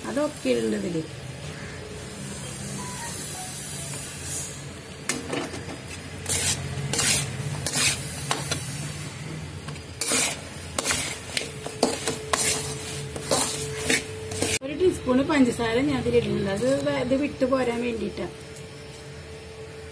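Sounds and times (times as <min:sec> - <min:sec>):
metal spatula scraping a pan: 0:06.2 - 0:08.5, 0:10.0 - 0:14.6.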